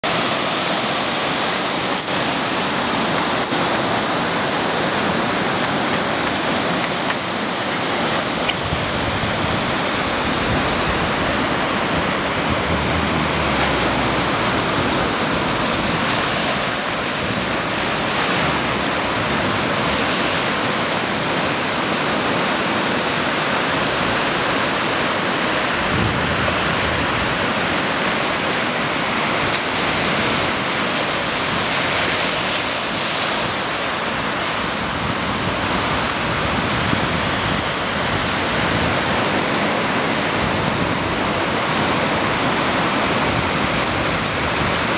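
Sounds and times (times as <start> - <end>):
ocean surf breaking: 0.0 - 44.9.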